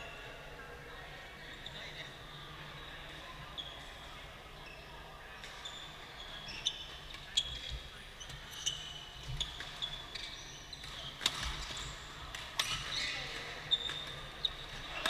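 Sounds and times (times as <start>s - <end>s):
shoes squeaking on floor: 5.5s - 12.0s.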